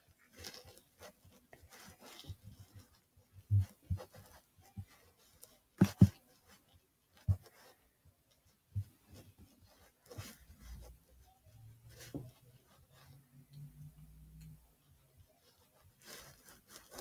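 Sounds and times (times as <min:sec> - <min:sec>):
faint rustling: 0:00.0 - 0:17.0
soft thumps and clicks: 0:05.8 - 0:06.6.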